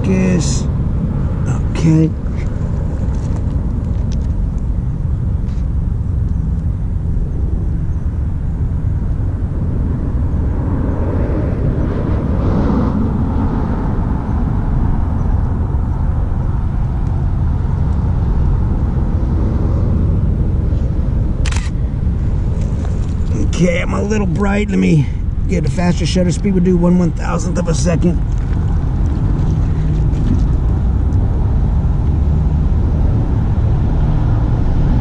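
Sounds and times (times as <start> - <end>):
low outdoor rumble: 0.0 - 35.0
vehicle passing: 6.8 - 35.0.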